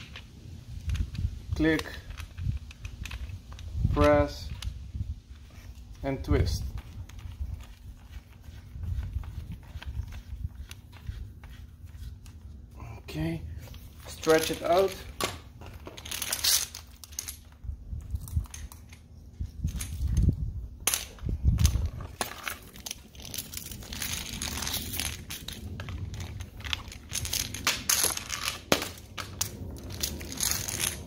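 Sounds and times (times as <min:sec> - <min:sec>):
plastic hose crackling and rustling: 0:00.0 - 0:12.8, 0:21.0 - 0:31.0.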